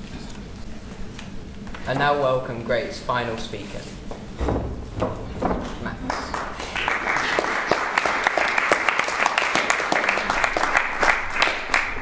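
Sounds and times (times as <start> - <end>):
small group applauding: 5.6 - 12.0.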